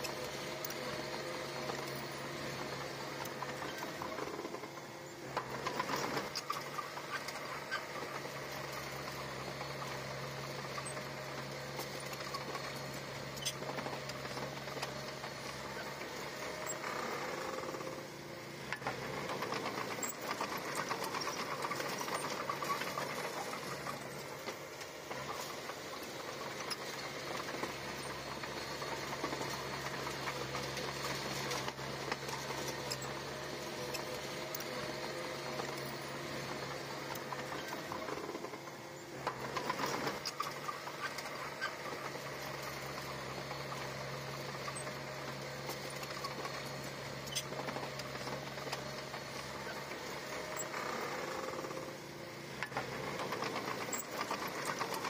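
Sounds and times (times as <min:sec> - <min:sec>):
bulldozer diesel engine rattling: 0:00.0 - 0:55.0.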